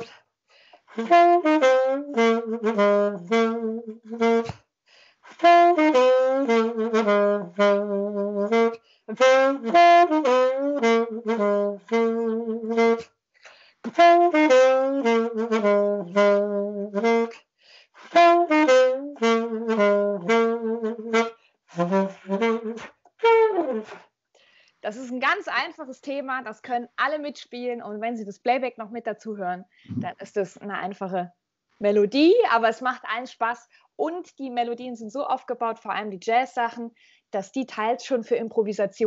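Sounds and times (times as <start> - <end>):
saxophone melody: 0.9 - 4.6, 5.3 - 24.0.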